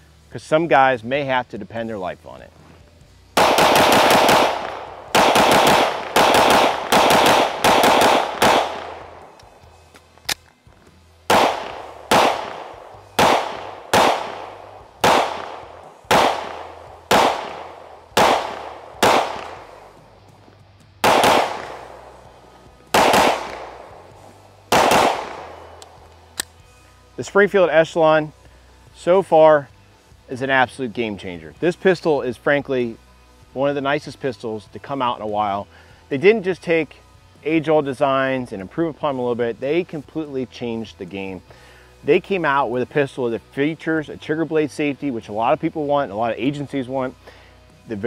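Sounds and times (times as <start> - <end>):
pistol shots echoing: 3.4 - 9.6, 11.3 - 20.0, 21.0 - 26.5.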